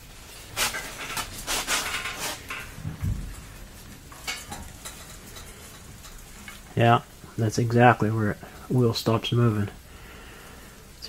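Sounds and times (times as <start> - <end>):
dull thump: 2.8 - 3.4
light metallic clanks: 4.1 - 6.6.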